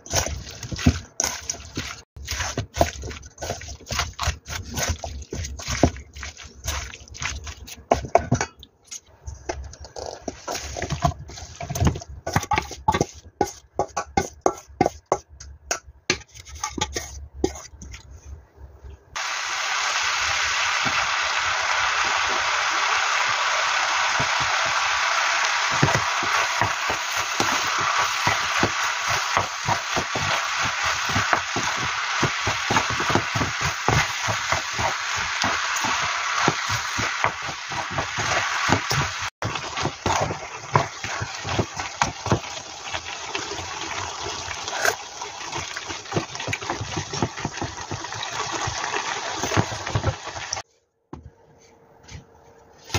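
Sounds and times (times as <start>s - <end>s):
spoon scraping pan: 0.0s - 15.3s, 16.1s - 18.1s, 25.6s - 42.6s
food sizzling in frying pan: 19.2s - 50.6s.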